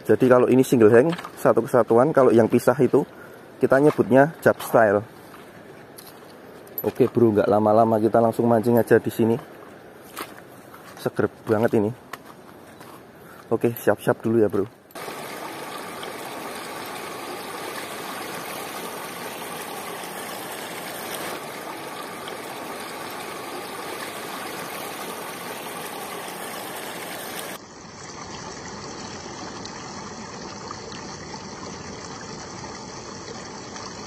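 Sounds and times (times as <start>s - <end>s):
river water rushing over rocks: 15.0s - 27.6s.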